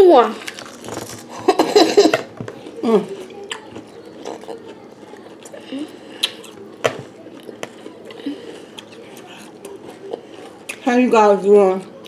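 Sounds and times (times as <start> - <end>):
cereal crunched and chewed: 0.4 - 1.3.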